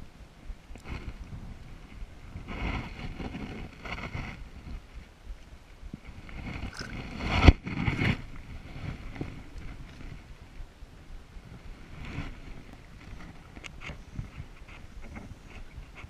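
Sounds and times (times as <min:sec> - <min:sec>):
water splashing: 0:06.6 - 0:07.2.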